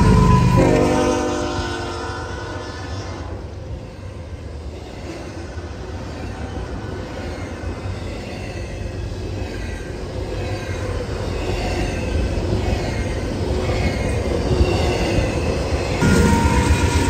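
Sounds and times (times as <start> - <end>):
locomotive horn: 0.0 - 3.2
train rumbling past: 0.0 - 17.0.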